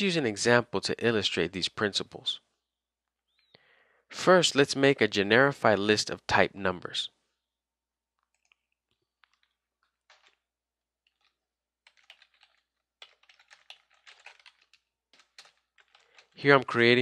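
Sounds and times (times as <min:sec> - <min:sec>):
typing on computer keyboard: 0:10.1 - 0:10.4, 0:11.1 - 0:16.4.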